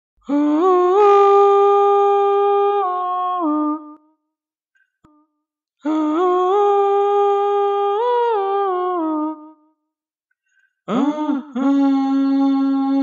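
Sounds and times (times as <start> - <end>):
person singing wordless held notes: 10.9 - 13.0.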